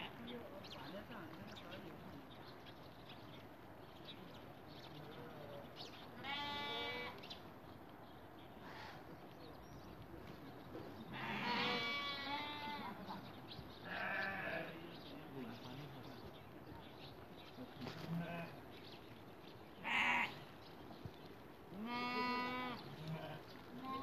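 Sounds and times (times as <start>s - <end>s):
livestock bleating: 6.2s - 7.2s, 11.1s - 13.1s, 13.8s - 14.8s, 18.1s - 18.6s, 19.8s - 20.4s, 21.7s - 24.0s.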